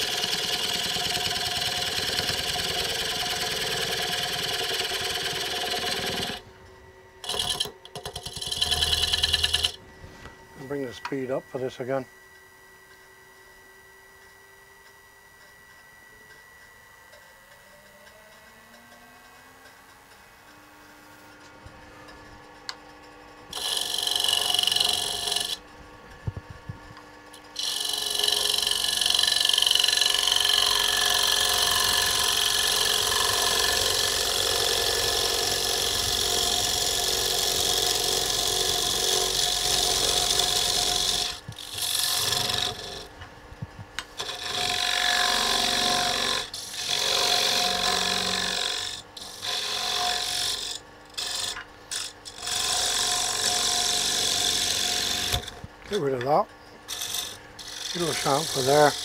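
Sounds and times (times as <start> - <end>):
lathe tool cutting wood: 0.0 - 6.4, 7.2 - 9.8, 23.5 - 25.6, 27.6 - 43.1, 44.2 - 59.0
lathe motor hum: 0.0 - 12.0, 23.5 - 25.6, 27.4 - 55.6, 56.9 - 59.0.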